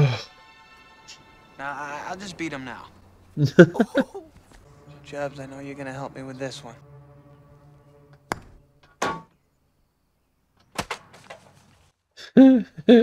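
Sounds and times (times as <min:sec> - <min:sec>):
person crying out: 0:03.6 - 0:04.3.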